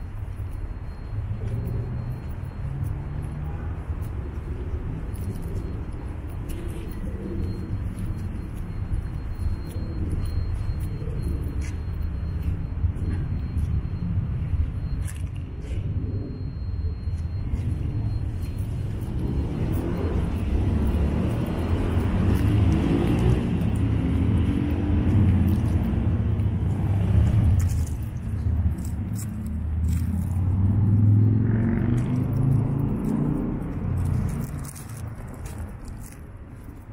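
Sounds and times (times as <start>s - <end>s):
traffic rumble: 0.0s - 36.9s
car engine passing: 28.8s - 35.5s.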